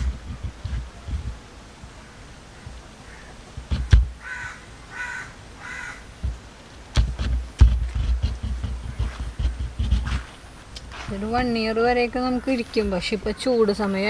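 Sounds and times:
low thumps: 0.0 - 1.4, 3.5 - 4.2, 6.2 - 11.5
crow cawing: 2.0 - 3.4, 4.2 - 6.1
sharp knocks: 3.6 - 4.2, 6.2 - 10.2.

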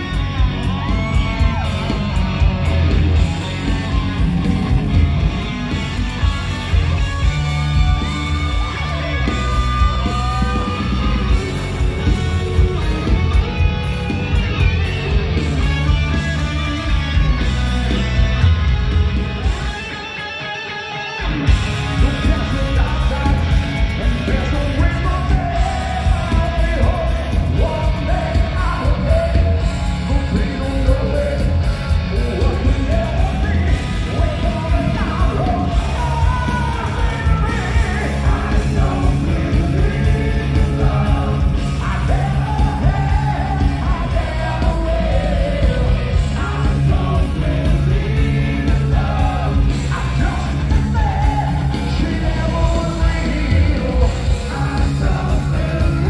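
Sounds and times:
live heavy metal band: 0.0 - 56.0
man singing loudly: 21.9 - 56.0.

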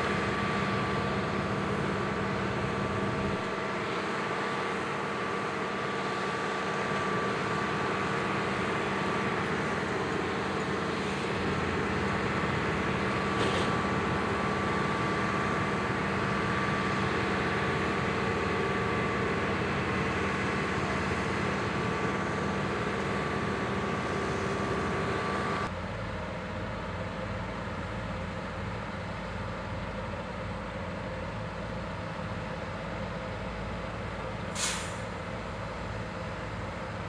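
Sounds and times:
diesel engine running: 0.0 - 37.0.

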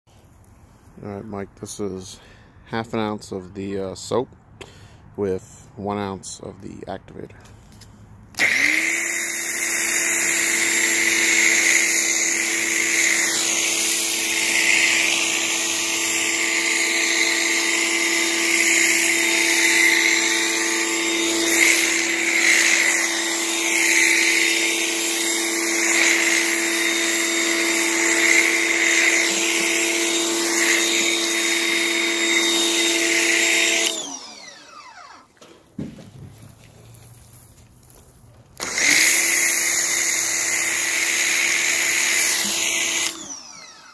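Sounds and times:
pressure washer motor whine: 8.3 - 35.4, 38.6 - 43.9.

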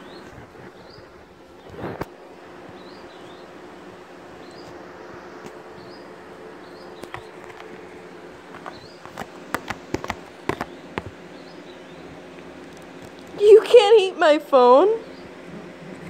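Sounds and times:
small bird chirping: 0.0 - 1.8, 2.7 - 3.6, 4.4 - 4.8, 5.7 - 7.4, 8.6 - 9.2, 9.8 - 12.1
steady low buzz: 0.0 - 16.0.

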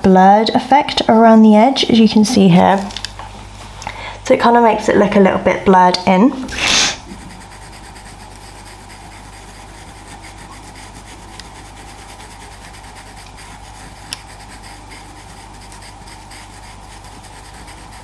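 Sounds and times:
pencil scratching on paper: 7.0 - 18.0.

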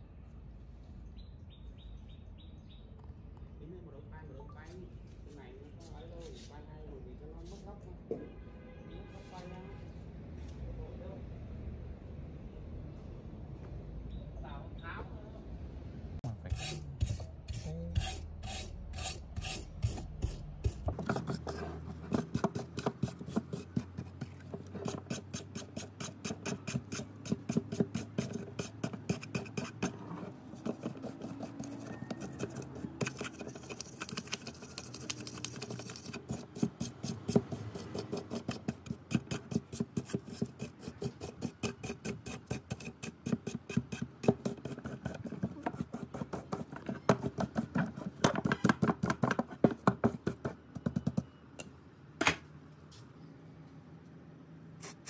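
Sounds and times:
hand tool strokes on rusted metal: 16.5 - 34.9, 35.5 - 48.6.

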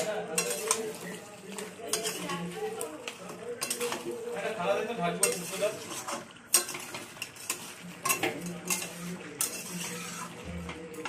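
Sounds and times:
metal spatula scraping a steel pan: 0.0 - 11.0.

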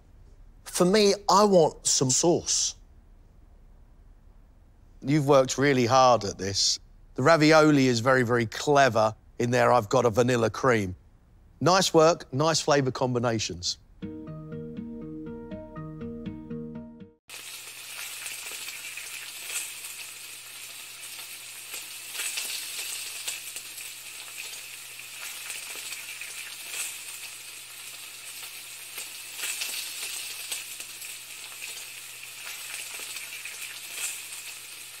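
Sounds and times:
plucked-string music: 14.0 - 17.1
crackling hiss with pops: 17.3 - 35.0.

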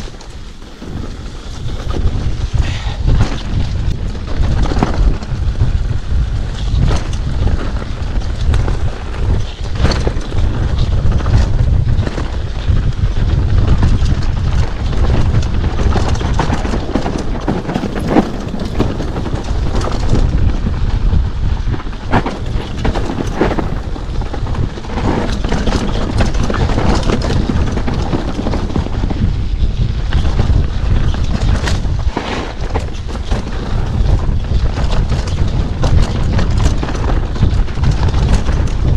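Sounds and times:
bike rattling over rocks: 0.0 - 38.9
wind buffeting microphone: 0.0 - 38.9.

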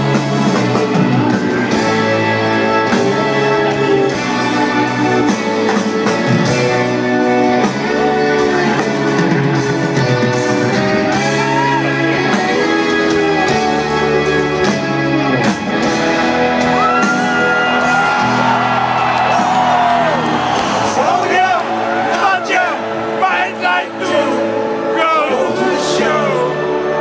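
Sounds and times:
electric guitar: 0.0 - 20.9
live rock band over pa: 0.0 - 27.0
lead vocal singing: 22.0 - 27.0.

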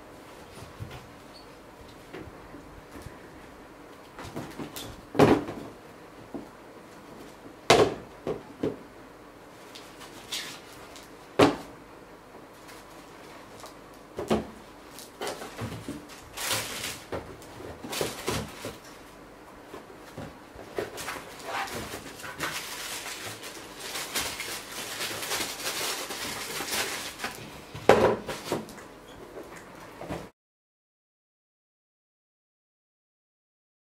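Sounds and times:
tissue paper rustling: 20.9 - 27.7.

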